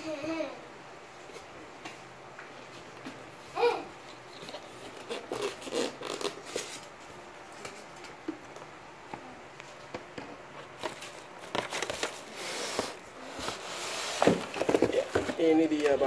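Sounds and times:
plastic wrapping crinkling: 0:04.3 - 0:08.1, 0:10.6 - 0:13.6.

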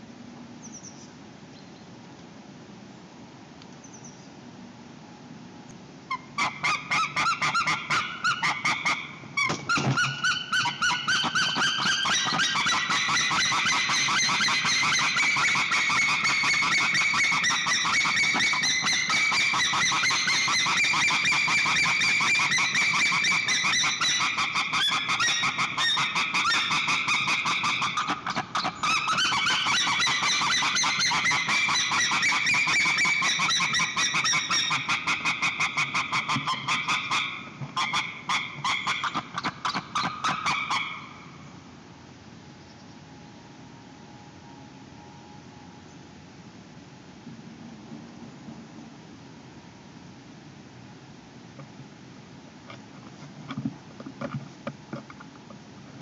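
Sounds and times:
eagle calling: 0:06.1 - 0:41.4.

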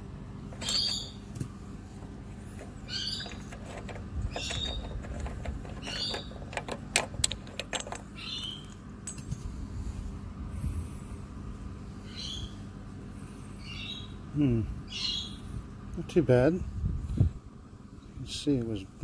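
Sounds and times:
bird calling: 0:00.6 - 0:01.3, 0:02.7 - 0:06.5, 0:08.0 - 0:08.8, 0:12.0 - 0:12.6, 0:13.6 - 0:15.5
metal clicks and scrapes: 0:02.5 - 0:08.1.

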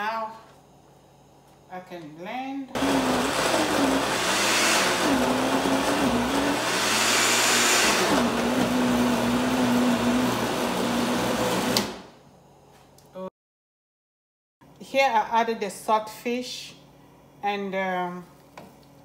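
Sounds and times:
blender running: 0:02.8 - 0:12.1.

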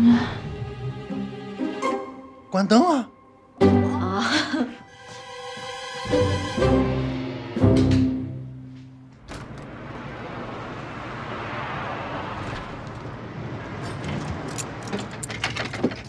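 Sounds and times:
car passing by: 0:05.7 - 0:15.0.

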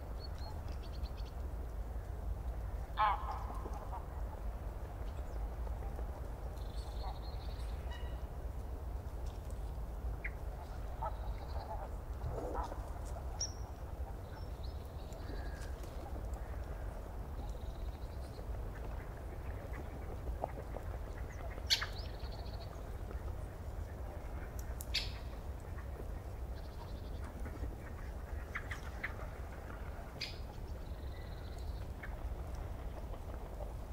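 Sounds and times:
bird calls: 0:06.6 - 0:08.3, 0:10.2 - 0:23.4, 0:24.4 - 0:33.7.

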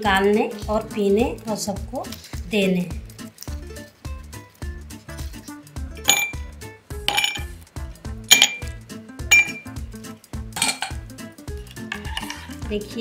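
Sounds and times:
background music with beat: 0:01.8 - 0:13.0
ice cubes clinking into glass: 0:06.1 - 0:06.4, 0:07.1 - 0:07.5.

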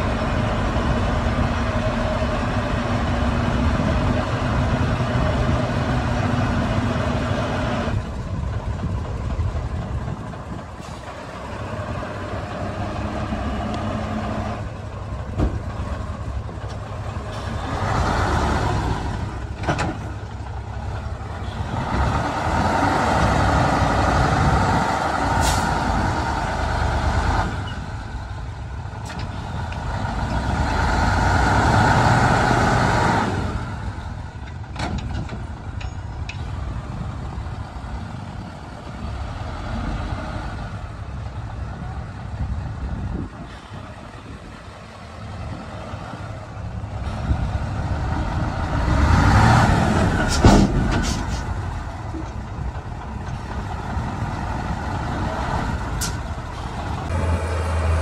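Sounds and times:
diesel engine revving: 0:00.0 - 0:35.8, 0:36.4 - 0:58.0
sharp metal clanks: 0:35.8 - 0:36.5.

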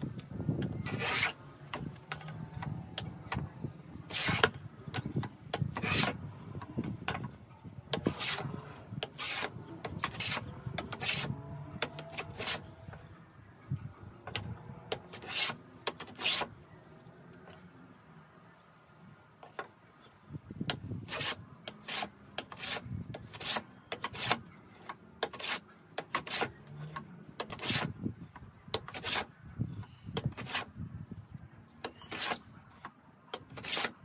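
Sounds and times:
hand plane shaving wood: 0:00.9 - 0:01.4, 0:04.1 - 0:04.5, 0:05.6 - 0:06.2, 0:08.0 - 0:12.6, 0:14.9 - 0:16.5, 0:21.1 - 0:26.6, 0:27.4 - 0:27.9, 0:28.8 - 0:29.3, 0:30.2 - 0:30.7, 0:32.0 - 0:32.5, 0:33.4 - 0:34.0.

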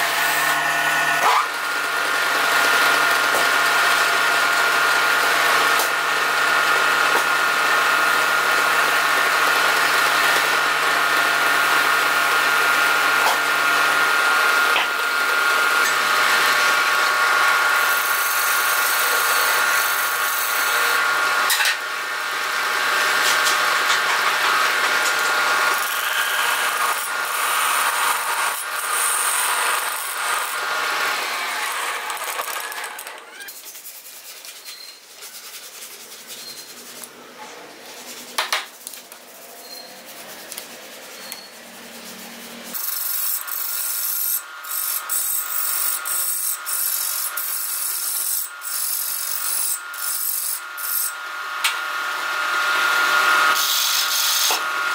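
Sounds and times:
wood lathe running: 0:00.0 - 0:33.3, 0:42.7 - 0:54.9
turning tool scraping wood: 0:31.2 - 0:51.1.

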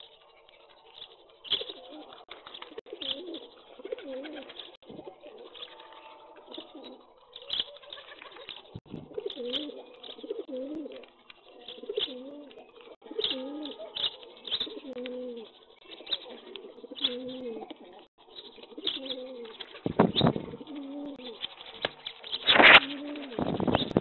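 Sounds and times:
beaks pecking grain on concrete: 0:00.0 - 0:23.9
pigeons cooing: 0:00.0 - 0:24.0.

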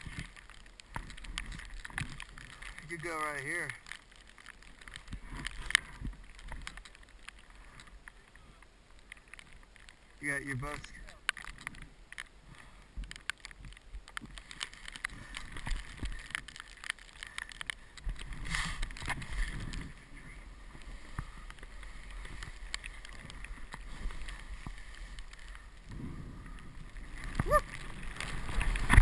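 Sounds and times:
snowboard sliding on snow: 0:18.4 - 0:29.0.

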